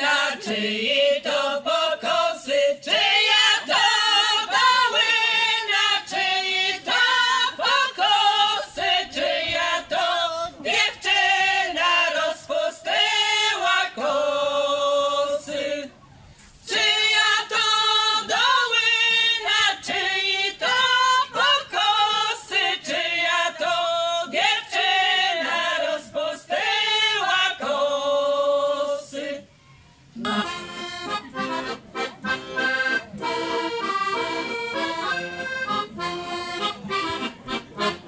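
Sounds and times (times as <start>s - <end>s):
women singing a cappella: 0.0s - 16.0s, 16.6s - 29.5s.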